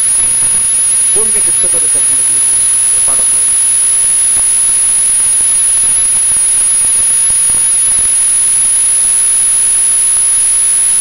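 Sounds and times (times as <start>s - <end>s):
high-pitched tone: 0.0s - 8.0s
electronic hiss: 0.0s - 11.0s.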